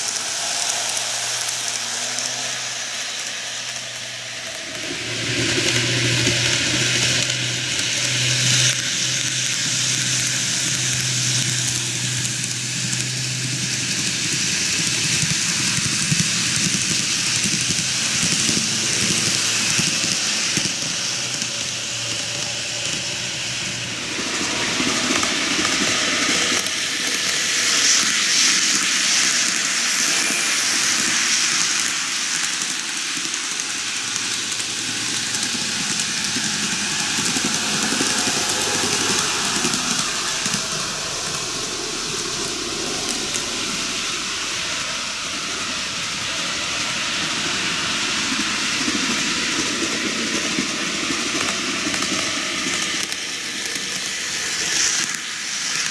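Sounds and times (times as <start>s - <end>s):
model train wheels rolling: 0.0s - 55.9s
low hum: 35.8s - 48.4s.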